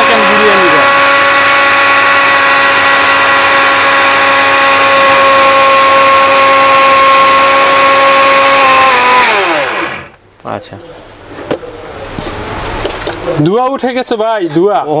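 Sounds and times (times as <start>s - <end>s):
mixer grinder motor whine: 0.0s - 10.2s.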